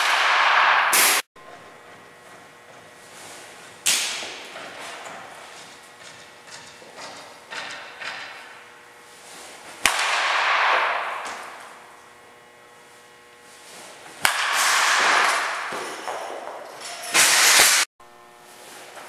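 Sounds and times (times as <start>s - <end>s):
baseball bat cracking ball: 0.0s - 1.2s, 3.7s - 8.7s, 9.5s - 11.9s, 13.8s - 16.6s.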